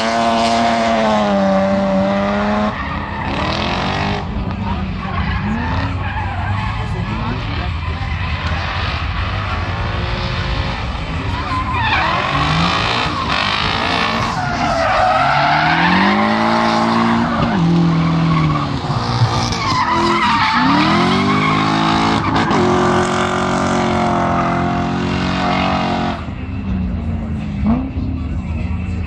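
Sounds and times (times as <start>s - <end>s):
car engine revving hard: 8.4s - 26.3s.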